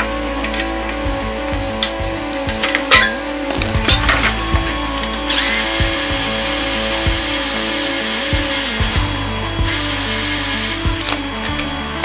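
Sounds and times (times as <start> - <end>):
background music: 0.0 - 12.0
power drill running: 4.0 - 12.0.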